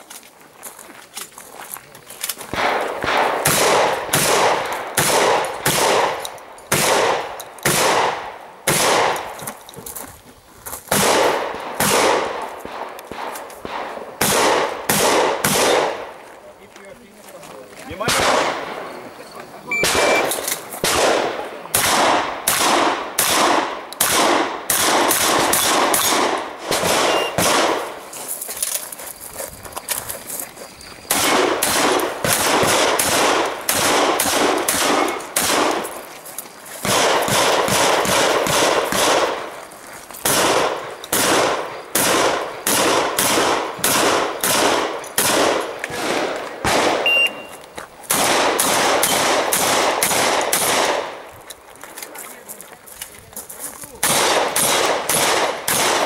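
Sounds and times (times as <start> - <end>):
shotgun shots: 2.5 - 9.3, 10.9 - 16.2, 18.0 - 18.9, 19.7 - 28.0, 31.1 - 36.0, 36.8 - 39.6, 40.2 - 47.5, 48.1 - 51.3, 54.0 - 56.0.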